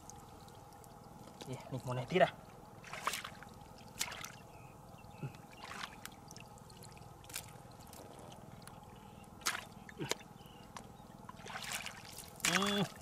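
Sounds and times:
short water splashes: 0:00.0 - 0:08.7, 0:09.3 - 0:13.0
hands sloshing through mud: 0:02.8 - 0:04.4, 0:05.3 - 0:08.4, 0:09.4 - 0:10.3, 0:11.3 - 0:13.0.

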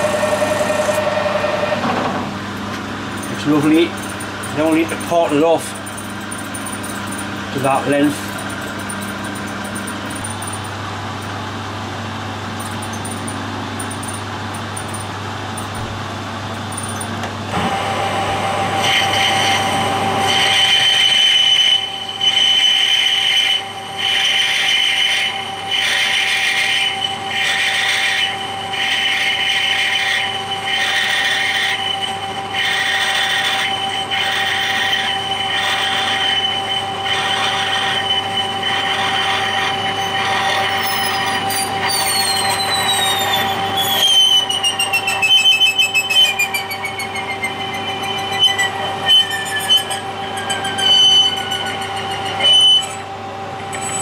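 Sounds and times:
cutting tool squealing: 0:00.0 - 0:01.9, 0:03.2 - 0:10.8, 0:18.7 - 0:54.0
lathe hum: 0:00.0 - 0:54.0
spindle whine: 0:00.0 - 0:54.0.

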